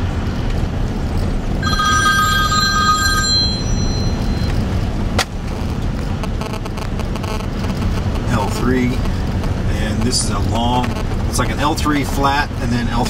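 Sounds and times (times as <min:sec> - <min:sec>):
vehicle cabin road rumble: 0:00.0 - 0:13.0
electronic ringing tone: 0:01.6 - 0:04.7.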